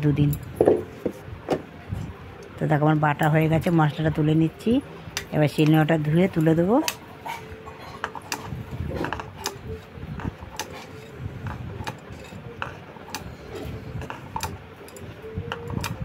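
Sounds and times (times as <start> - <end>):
grinding stone tapping and scraping: 6.8 - 16.0.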